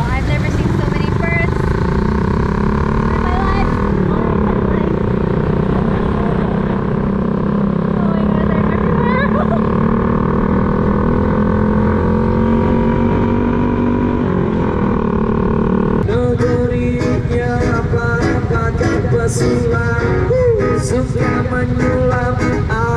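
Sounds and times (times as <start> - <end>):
motor scooter engine running: 0.0 - 22.9
road and wind noise: 0.0 - 22.9.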